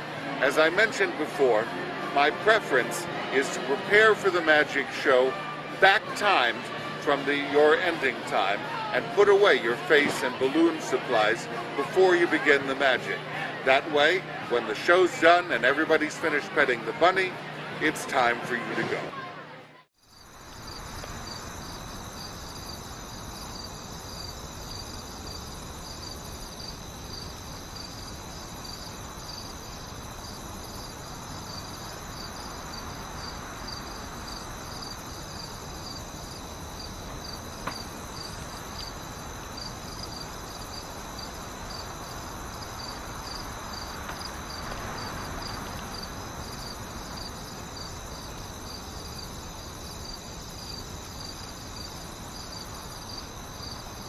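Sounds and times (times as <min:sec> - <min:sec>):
background hiss: 0:20.0 - 0:54.0
crickets chirping: 0:20.0 - 0:54.0.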